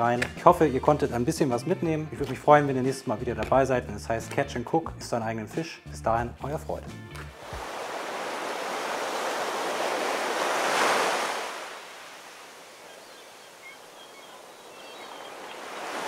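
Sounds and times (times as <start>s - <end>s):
ocean surf washing in: 7.4s - 16.0s.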